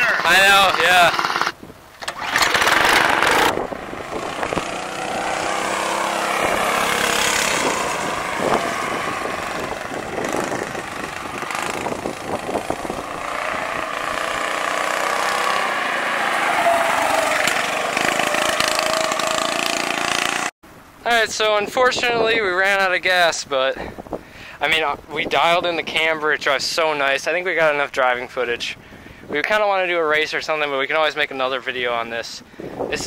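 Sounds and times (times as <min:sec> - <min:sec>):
go-kart engine running: 0:00.0 - 0:20.5.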